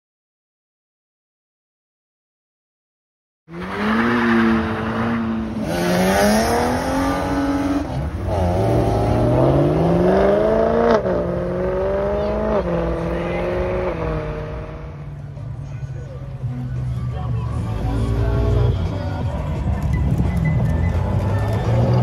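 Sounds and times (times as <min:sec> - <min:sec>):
car engine accelerating: 0:03.5 - 0:15.6.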